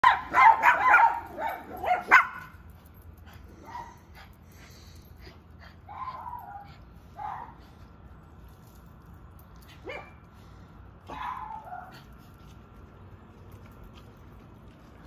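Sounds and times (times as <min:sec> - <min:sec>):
small dogs yapping: 0:00.0 - 0:02.7, 0:05.7 - 0:07.7, 0:11.0 - 0:12.3.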